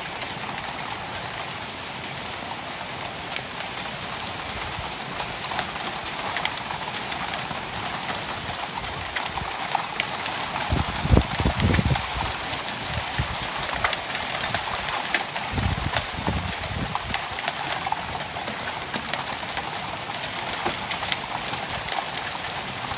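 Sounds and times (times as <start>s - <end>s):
heavy rain pouring: 0.0s - 22.9s.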